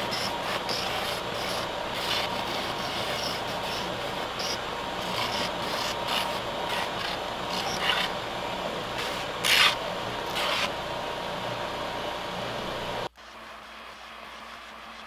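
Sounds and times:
rasping grind on sander belt: 0.0s - 8.2s, 9.0s - 10.7s.

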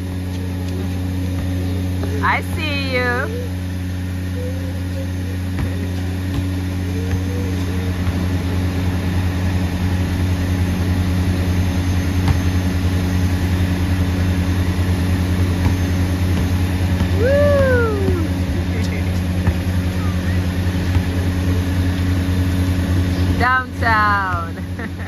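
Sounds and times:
motor humming: 0.0s - 25.0s
basketball bouncing on concrete: 0.2s - 2.5s, 5.4s - 21.7s.

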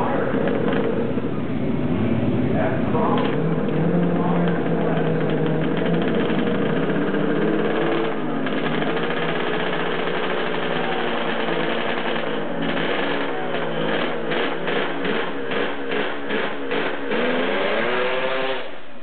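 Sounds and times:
snowmobile engine idling: 3.0s - 18.0s.

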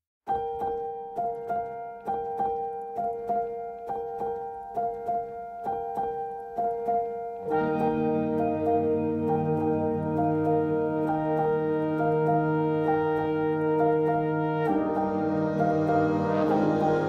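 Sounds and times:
bright keyboard notes: 0.3s - 17.0s
low sustained chords: 7.4s - 17.0s.

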